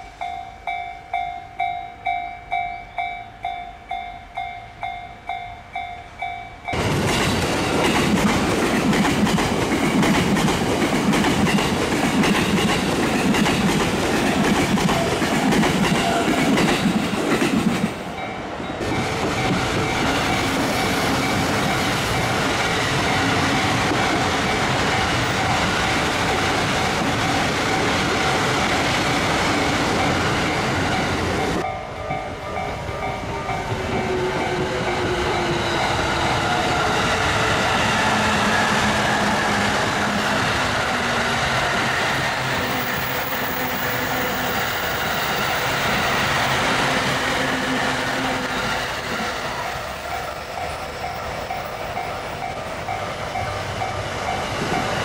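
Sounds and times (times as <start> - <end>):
crossing warning bell: 0.0 - 7.2, 11.5 - 17.0, 17.9 - 28.6, 29.6 - 37.0, 49.4 - 55.0
trains rumbling past: 0.0 - 55.0.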